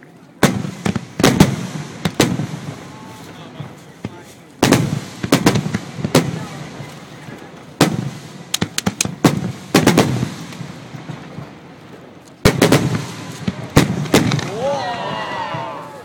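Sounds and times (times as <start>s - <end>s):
firework shells bursting: 7.8s - 11.3s.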